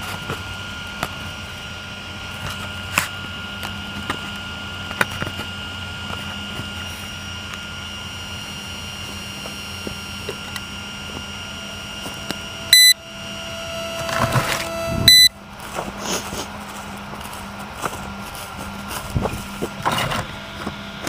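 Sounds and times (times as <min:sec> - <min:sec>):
low steady electronic tone: 0:00.0 - 0:15.7
high-pitched electronic whine: 0:00.0 - 0:21.0
loud electronic beeps: 0:11.4 - 0:15.4.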